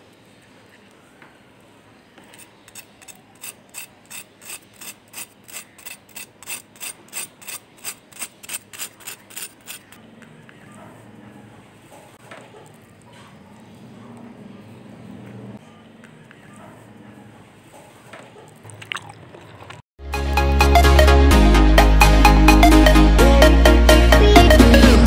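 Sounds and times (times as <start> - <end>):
knife scraping crispy crust: 2.2 - 10.0.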